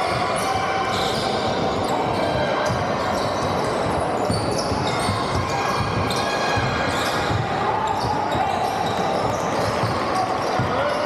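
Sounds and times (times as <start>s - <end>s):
din of players' voices: 0.0s - 11.0s
shoes squeaking on court: 0.9s - 7.3s.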